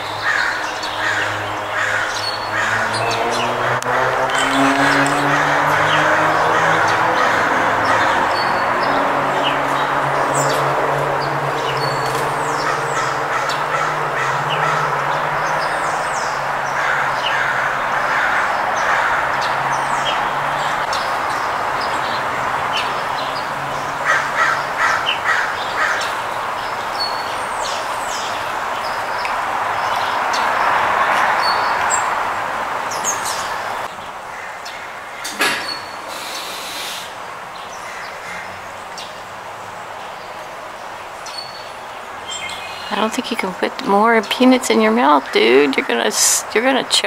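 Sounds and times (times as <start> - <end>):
sparrows chirping: 0.0 - 47.0
jay harsh rasping calls: 0.2 - 26.4, 35.6 - 37.2.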